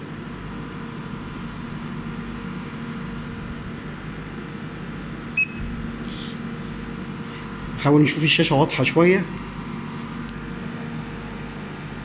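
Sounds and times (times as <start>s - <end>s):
laser cutter humming: 0.0s - 12.0s
short high beep: 5.4s - 5.7s.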